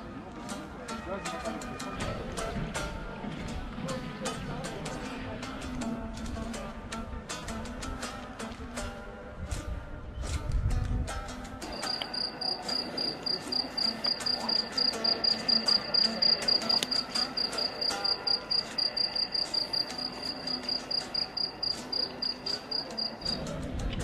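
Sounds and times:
cricket chirping: 0:11.7 - 0:23.4.

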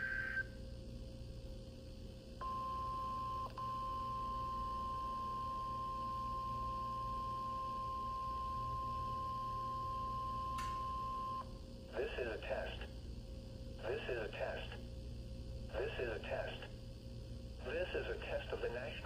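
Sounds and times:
data burst tone: 0:00.0 - 0:00.5
steady warning alarm tone: 0:02.4 - 0:11.5.

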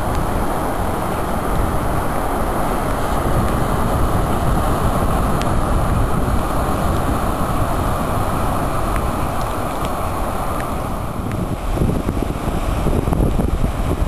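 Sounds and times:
surf breaking on beach: 0:00.0 - 0:14.0
wind buffeting microphone: 0:00.0 - 0:14.0.

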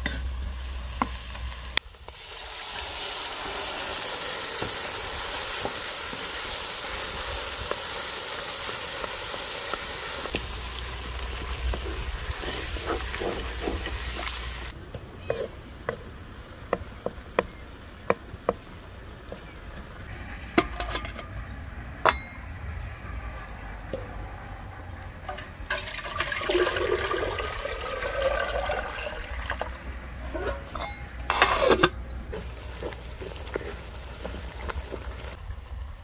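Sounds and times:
water pouring into pan: 0:25.3 - 0:29.8.

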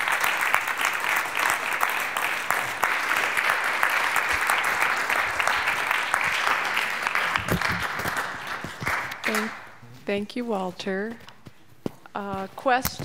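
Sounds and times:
audience applause: 0:00.0 - 0:09.6.

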